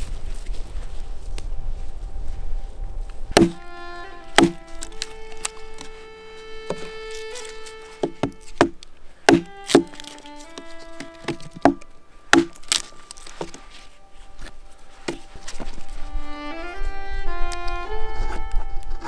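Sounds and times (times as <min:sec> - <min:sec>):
music with long held notes: 0:01.4 - 0:19.0
axe knocking on wood: 0:03.4 - 0:03.6, 0:04.4 - 0:04.6, 0:08.0 - 0:10.0, 0:11.0 - 0:11.8, 0:12.4 - 0:12.6.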